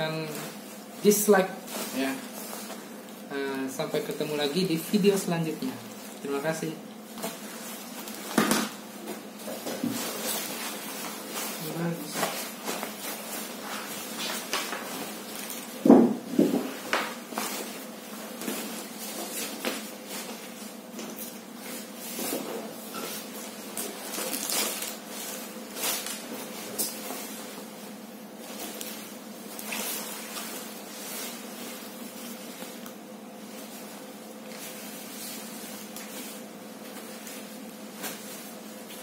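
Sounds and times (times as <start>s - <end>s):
rustles and knocks: 8.2s - 20.4s.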